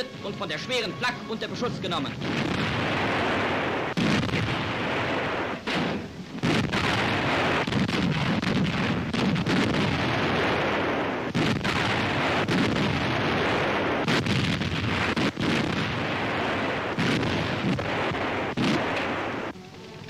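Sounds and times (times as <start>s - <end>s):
anti-aircraft guns firing: 2.0s - 19.5s
continuous rumble of gunfire: 2.1s - 19.6s.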